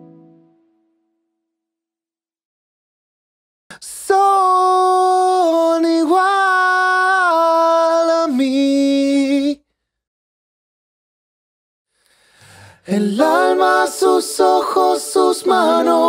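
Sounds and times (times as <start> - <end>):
man singing unaccompanied: 4.1 - 9.6.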